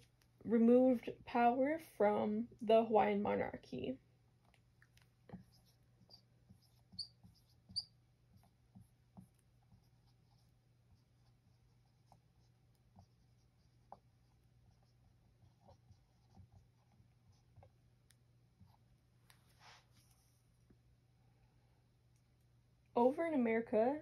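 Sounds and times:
marker squeaking on whiteboard: 4.9 - 17.8.

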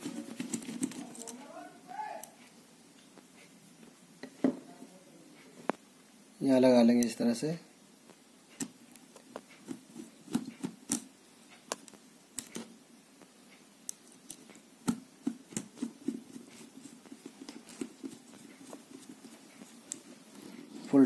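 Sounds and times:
screwdriver clicking and scraping: 0.0 - 1.5, 11.7 - 12.7, 13.9 - 20.2.

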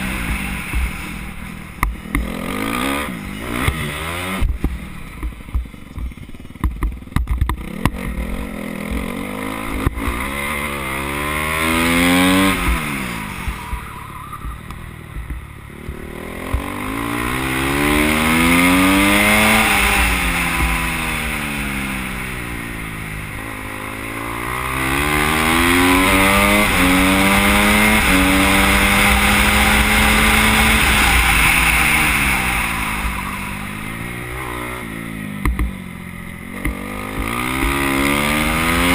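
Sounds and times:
motorcycle engine revving: 0.0 - 38.9
knocks and rattles on dirt: 3.5 - 10.4, 35.3 - 35.9, 36.5 - 38.9.

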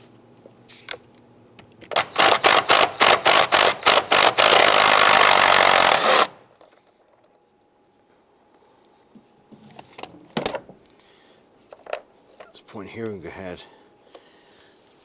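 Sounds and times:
cordless power tool running: 1.9 - 6.4.

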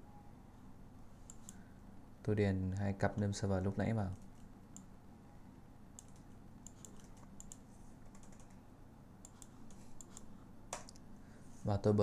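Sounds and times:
typing on computer keyboard: 6.0 - 8.6.

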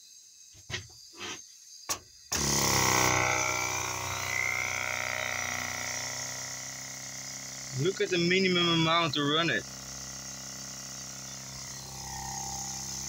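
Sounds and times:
compressed air hissing: 0.7 - 1.5, 5.1 - 13.0
oscillator low buzz: 2.4 - 13.0.

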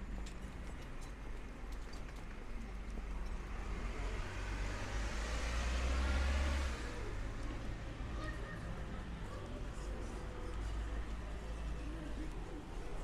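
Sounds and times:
vehicle driving past: 3.5 - 7.4.

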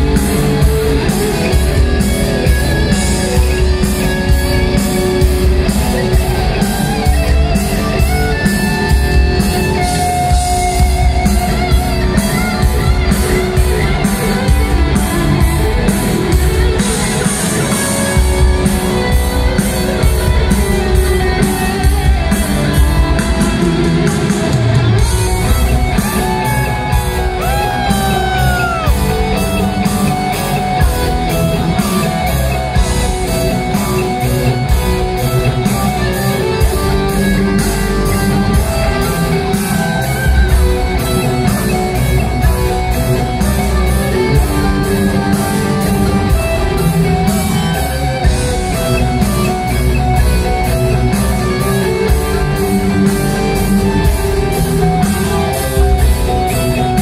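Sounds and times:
distorted electric guitars: 0.0 - 57.0
driving drum kit: 0.0 - 57.0.

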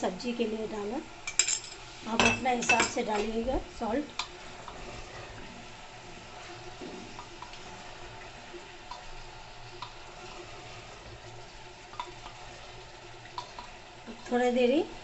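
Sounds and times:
meat and vegetables sizzling: 0.0 - 15.0.

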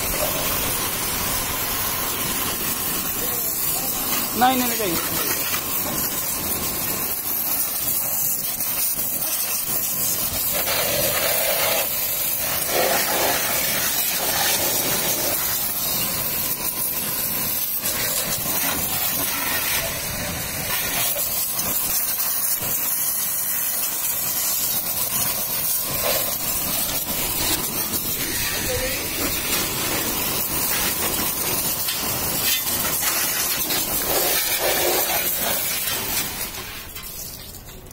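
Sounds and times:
pressure washer spray hissing: 0.0 - 37.9.

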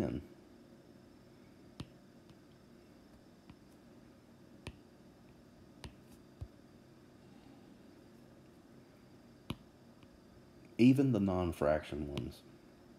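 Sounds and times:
stylus tapping glass screen: 9.5 - 9.7.

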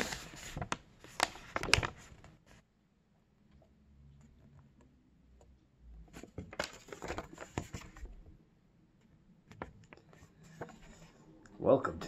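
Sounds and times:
paper leaflet rustling: 0.0 - 2.6, 6.1 - 8.2, 9.5 - 11.2.

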